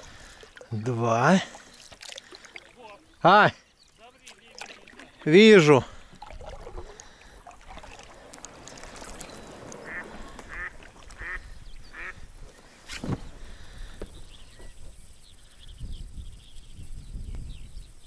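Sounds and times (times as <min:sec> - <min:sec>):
duck quacking: 0:09.8 - 0:12.2.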